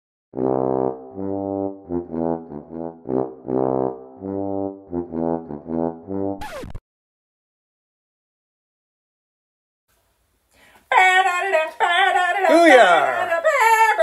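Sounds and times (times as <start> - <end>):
brass instrument playing tune: 0.3 - 6.8.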